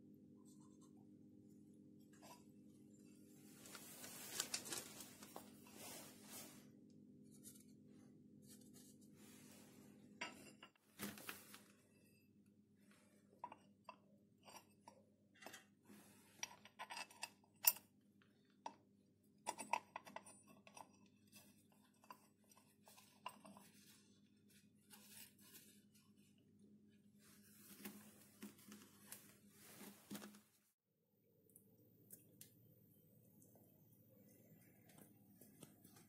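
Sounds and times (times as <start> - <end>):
faint steady hum: 31.2 - 36.0.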